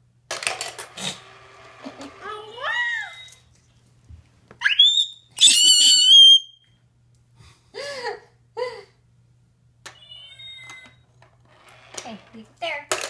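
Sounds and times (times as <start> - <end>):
toddler squealing: 10.0 - 10.9.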